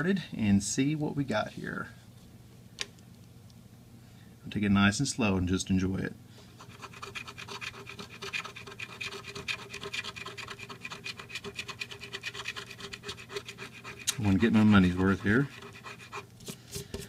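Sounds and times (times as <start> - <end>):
faint steady hum: 0.0 - 17.0
lottery ticket being scratched: 6.6 - 16.6.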